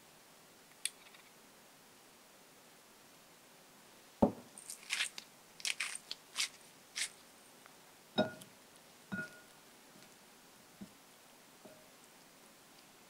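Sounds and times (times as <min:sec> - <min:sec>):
crisp crunching strokes: 0:04.6 - 0:07.2.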